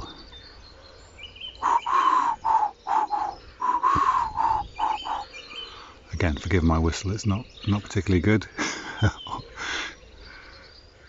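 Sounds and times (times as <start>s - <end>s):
man whistling pigeon call: 1.6s - 5.4s.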